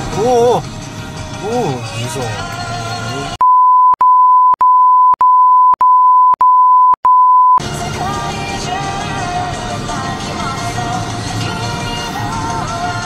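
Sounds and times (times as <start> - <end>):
background music: 0.0 - 3.4, 7.6 - 13.0
censor bleep: 3.4 - 7.6.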